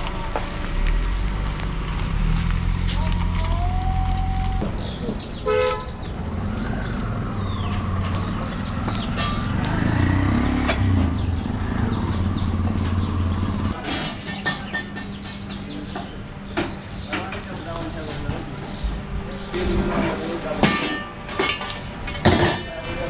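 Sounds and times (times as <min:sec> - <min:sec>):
car horn toot: 0:05.4 - 0:05.9
vehicle engine running: 0:06.8 - 0:13.8.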